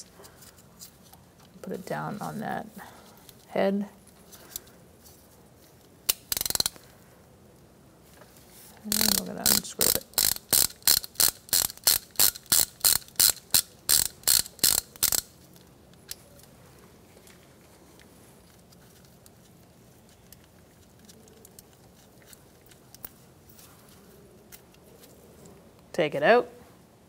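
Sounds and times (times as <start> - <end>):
socket ratchet clicking: 6.1 - 6.8, 8.9 - 15.4.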